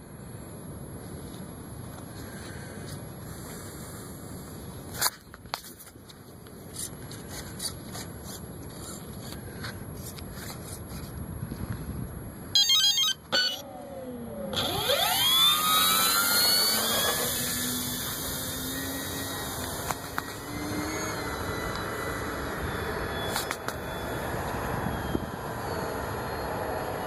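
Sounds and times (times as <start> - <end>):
electric motor and propeller whine: 12.6 - 27.0.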